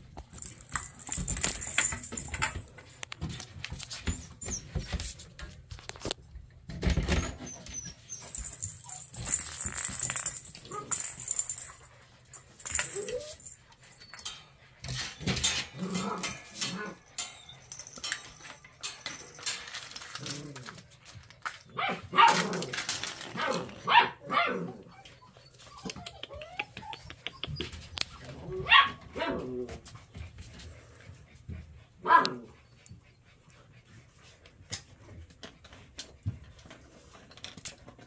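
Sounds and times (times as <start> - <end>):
toys clicking and clattering: 0.0 - 6.2, 6.9 - 23.8
puppy barking and yipping: 21.7 - 22.5, 23.4 - 27.7, 28.6 - 29.7, 32.0 - 32.6.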